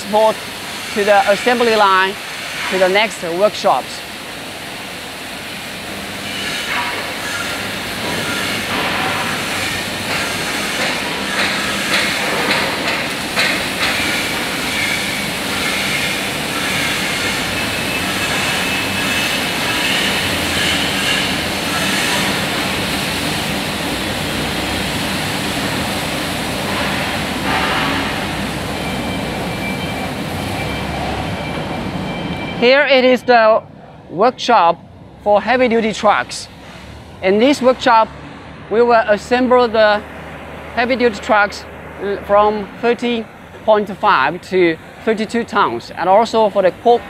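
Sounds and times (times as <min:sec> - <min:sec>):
machinery humming: 0:00.0 - 0:47.0
metal clanks and knocks: 0:10.0 - 0:14.2.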